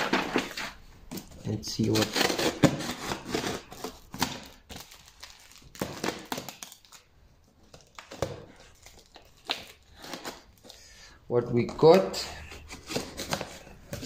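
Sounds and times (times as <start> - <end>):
cardboard parcel rustling: 0.0 - 10.8, 11.4 - 14.0.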